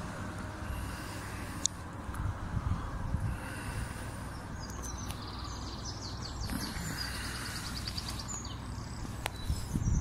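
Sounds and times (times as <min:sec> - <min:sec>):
songbirds singing: 0:00.0 - 0:10.0.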